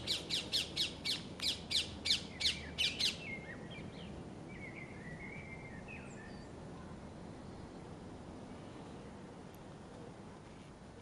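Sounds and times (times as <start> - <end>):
bird's harsh rapid calls: 0.0 - 3.3
faint small bird chirps: 4.5 - 6.6.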